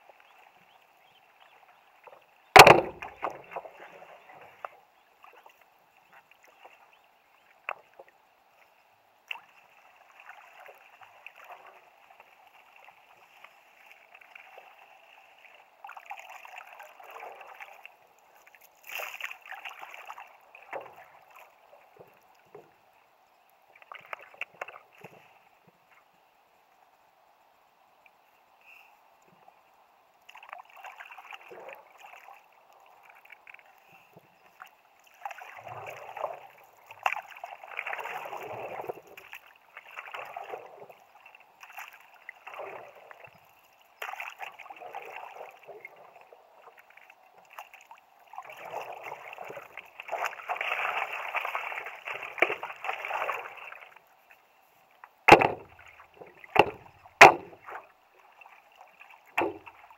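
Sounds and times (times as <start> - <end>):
paddle splashing in river water: 0.0 - 26.0, 28.6 - 59.9
sharp knocks: 2.6 - 3.1, 55.3 - 55.7, 56.6 - 57.6.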